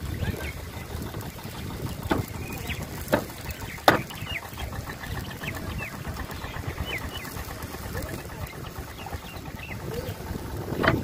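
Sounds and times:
birds chirping: 0:00.0 - 0:11.0
sharp knocks: 0:02.0 - 0:02.4, 0:03.1 - 0:04.2.

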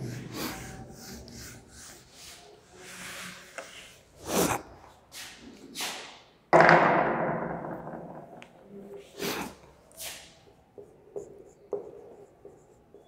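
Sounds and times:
duster rubbing on whiteboard: 0:00.0 - 0:04.6.

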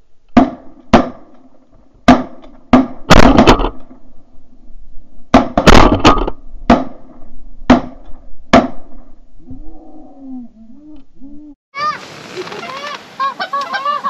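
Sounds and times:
shotgun blasts: 0:02.0 - 0:03.8.

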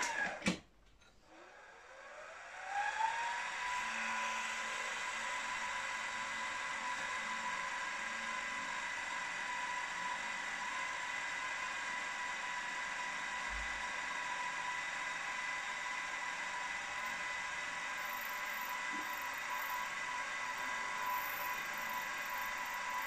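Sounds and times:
milling machine spindle whine: 0:02.1 - 0:23.0
drill bit cutting brass: 0:16.9 - 0:23.0.

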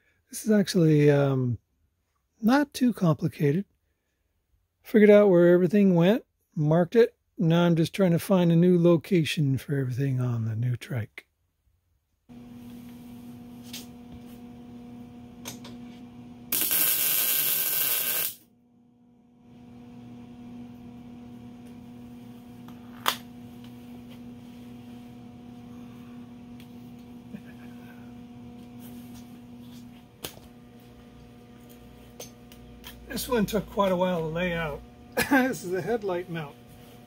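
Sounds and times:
welder humming: 0:12.3 - 0:37.0
loud tack weld: 0:16.5 - 0:18.4.

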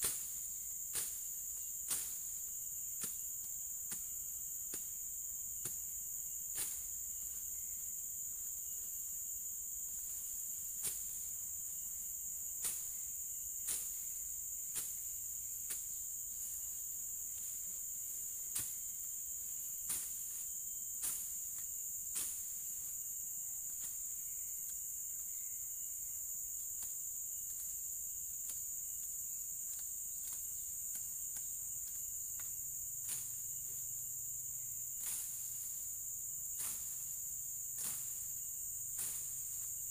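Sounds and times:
blade chopping through undergrowth: 0:00.0 - 0:00.3, 0:00.9 - 0:01.2, 0:01.9 - 0:02.2, 0:03.0 - 0:03.2, 0:06.5 - 0:06.9, 0:18.5 - 0:18.8, 0:19.8 - 0:20.3, 0:36.6 - 0:37.0, 0:37.8 - 0:38.3, 0:39.0 - 0:39.6
insects droning: 0:00.0 - 0:39.9.

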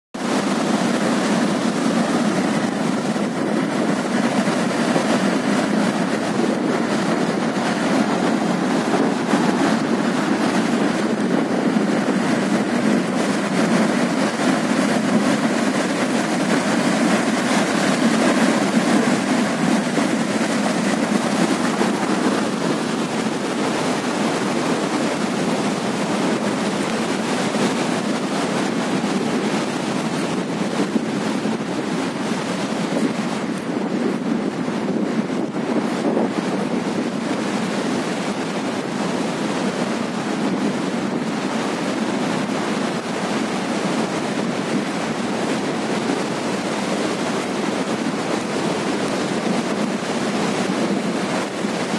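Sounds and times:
floodwater rushing: 0:00.2 - 0:51.9.

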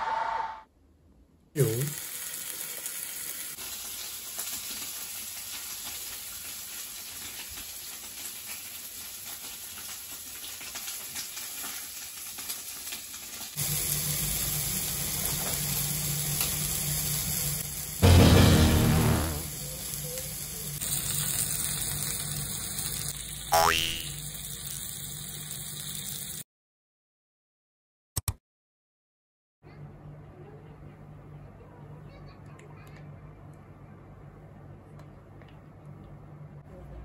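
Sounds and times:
meat sizzling on hot plate: 0:01.6 - 0:26.4.

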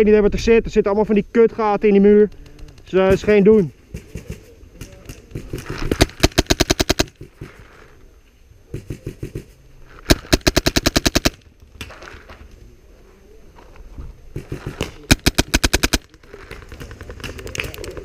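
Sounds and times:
airsoft rifles firing: 0:02.4 - 0:07.7, 0:08.7 - 0:12.0, 0:14.3 - 0:18.0.

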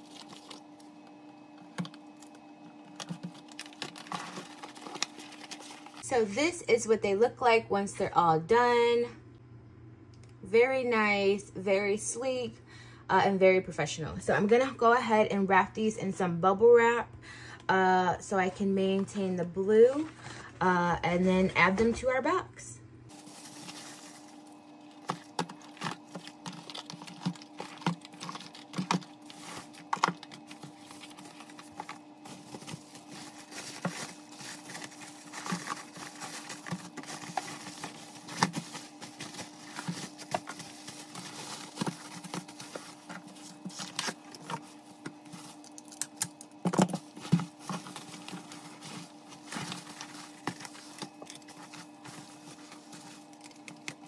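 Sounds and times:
bubble wrap crinkling: 0:00.0 - 0:01.0, 0:01.6 - 0:06.0, 0:23.1 - 0:54.0
steady low hum: 0:14.2 - 0:54.0.

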